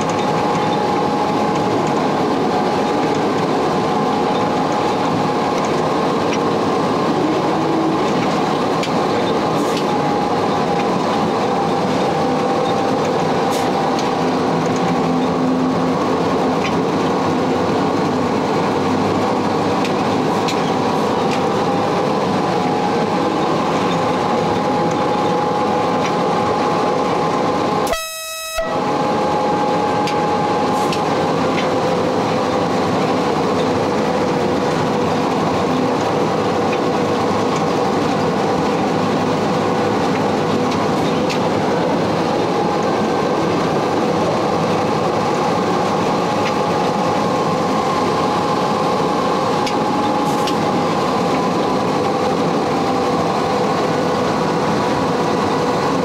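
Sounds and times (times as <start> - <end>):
wheels rumbling on rails: 0.0 - 56.0
short single tone: 27.9 - 31.0.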